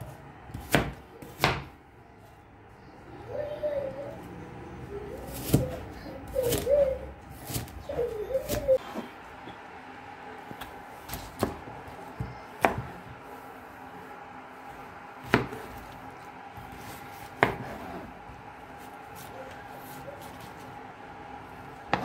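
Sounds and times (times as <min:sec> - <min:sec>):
knife chopping on cutting board: 0:15.2 - 0:15.8, 0:16.6 - 0:18.0.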